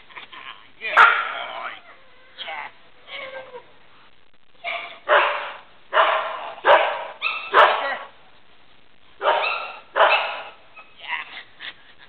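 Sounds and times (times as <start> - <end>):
dog barking: 0.9 - 1.4, 4.6 - 8.1, 9.2 - 10.6.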